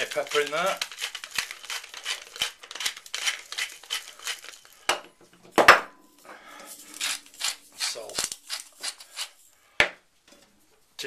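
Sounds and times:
pepper mill grinding: 0.0s - 4.9s, 6.7s - 9.4s.

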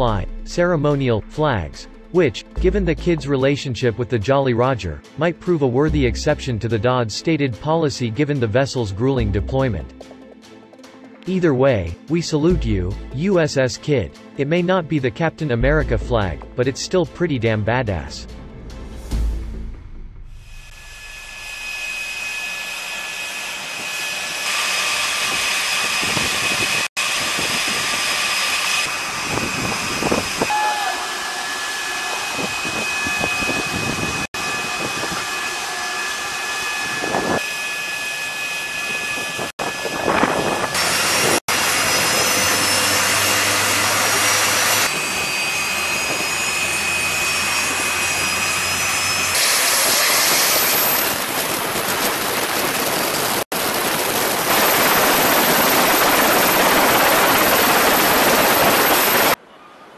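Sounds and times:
helicopter turbine whine: 20.4s - 59.4s.

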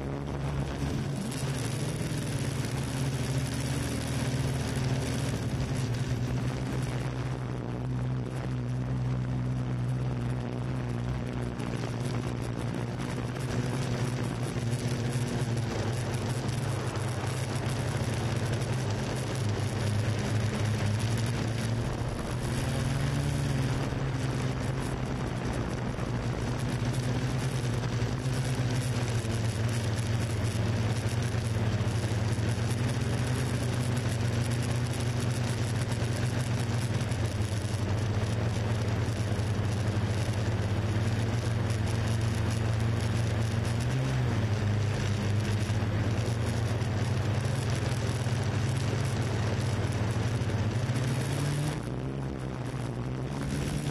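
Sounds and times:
rushing noise: 0.0s - 40.0s
drone propellers humming: 0.0s - 53.9s.

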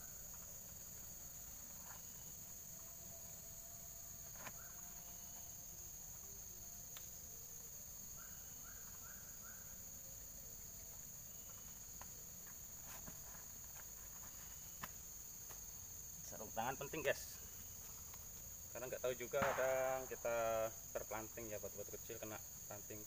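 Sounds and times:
crickets chirping: 0.0s - 23.0s.

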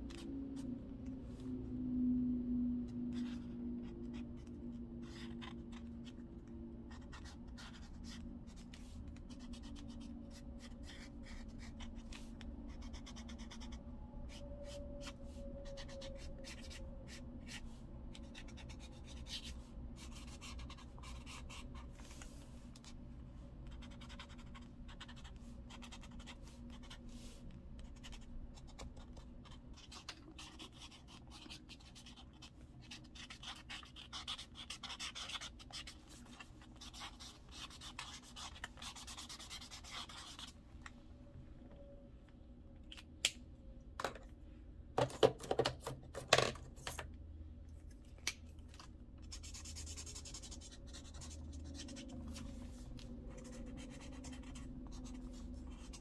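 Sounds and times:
pen scratching on paper: 4.1s - 6.2s, 6.9s - 17.6s, 18.2s - 22.3s, 23.6s - 40.5s, 49.4s - 56.0s
steady low hum: 47.1s - 56.0s.

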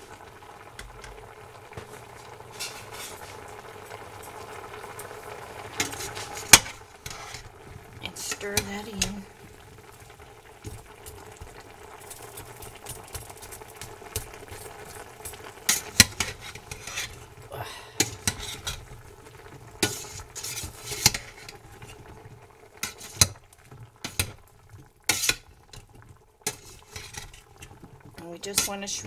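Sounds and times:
food sizzling: 0.0s - 29.0s
metal tongs scraping a pot: 2.5s - 3.4s, 5.8s - 7.5s, 15.7s - 17.3s, 18.0s - 18.9s, 19.8s - 21.6s, 22.8s - 23.4s, 25.1s - 25.5s, 26.4s - 27.7s, 28.4s - 29.0s.

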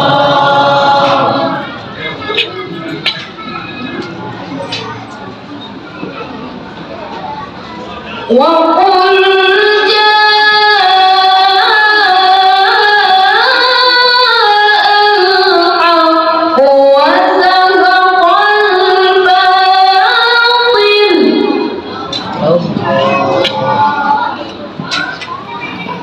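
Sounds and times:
boy reciting melodically into microphone: 7.2s - 26.0s.

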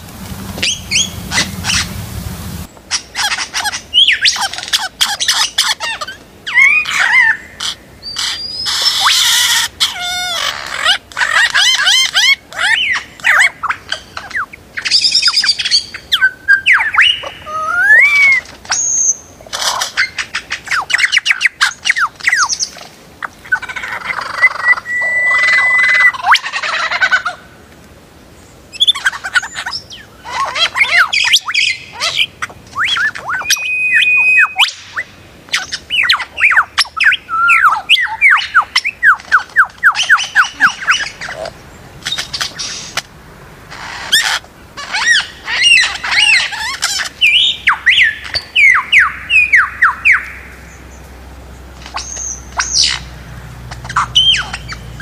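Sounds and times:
lyrebird mimicking calls: 0.6s - 2.0s, 2.9s - 27.4s, 28.7s - 43.1s, 43.7s - 50.5s, 51.8s - 55.0s
bird held steady whistle: 32.7s - 34.8s.

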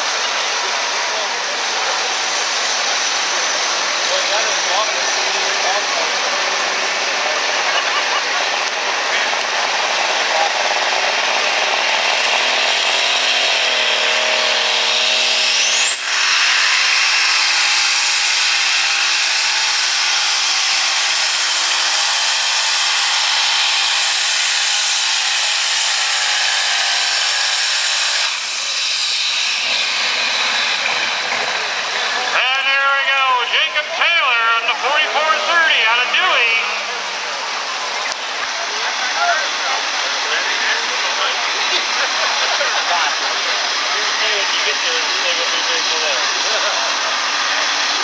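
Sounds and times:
tractor engine running flat out: 28.6s - 48.0s.

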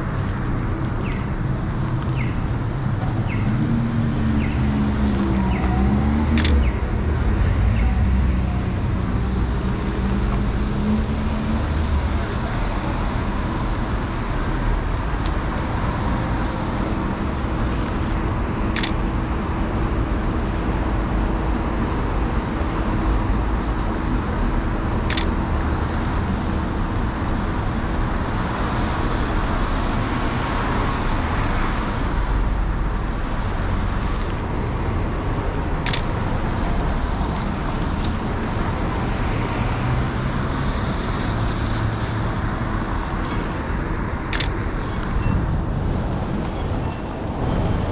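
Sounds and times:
city street traffic: 0.0s - 47.9s
camera shutter clicks: 6.3s - 6.7s, 18.8s - 19.0s, 25.1s - 25.3s, 35.9s - 36.2s, 44.4s - 44.6s.

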